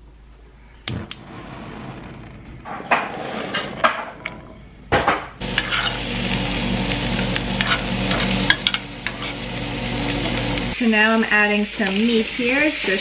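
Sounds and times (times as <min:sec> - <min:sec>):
food sizzling in a pan: 0:05.4 - 0:13.0
spoon scraping against pan: 0:05.5 - 0:06.1, 0:07.5 - 0:09.5.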